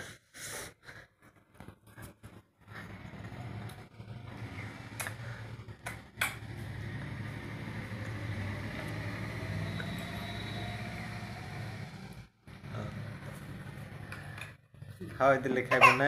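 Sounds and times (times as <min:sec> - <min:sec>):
steady low hum: 0:01.4 - 0:15.6.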